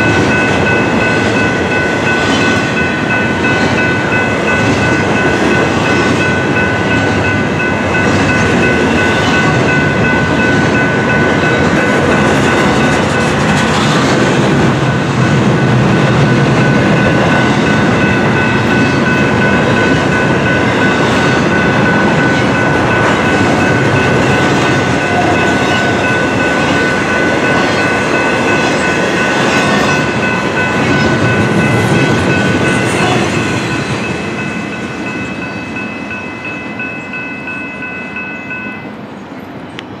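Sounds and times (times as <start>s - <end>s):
freight train wheels rumbling: 0.0s - 40.0s
high ringing tone: 15.9s - 39.0s.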